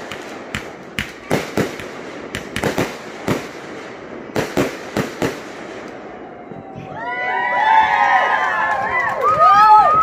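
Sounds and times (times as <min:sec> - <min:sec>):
fireworks bangs: 0:00.0 - 0:06.9.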